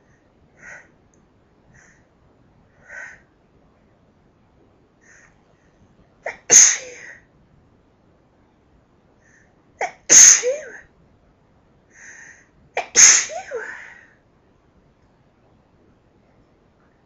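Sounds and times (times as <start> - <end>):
woman sneezing: 6.3 - 7.2, 9.8 - 10.8, 12.8 - 13.9.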